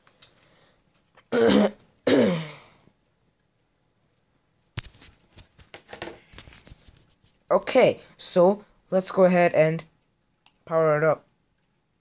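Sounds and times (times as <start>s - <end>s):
person clearing throat: 1.3s - 2.8s.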